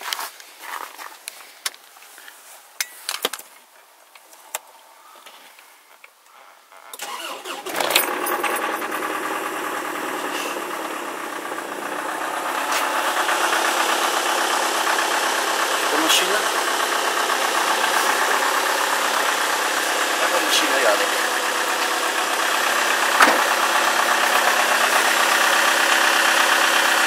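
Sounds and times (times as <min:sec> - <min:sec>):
diesel engine idling: 0:07.0 - 0:27.0
starter cranking: 0:07.0 - 0:27.0.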